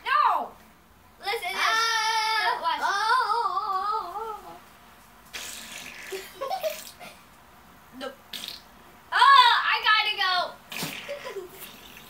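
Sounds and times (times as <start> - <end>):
child's voice warbling through fan: 1.2 - 4.6, 9.1 - 10.6.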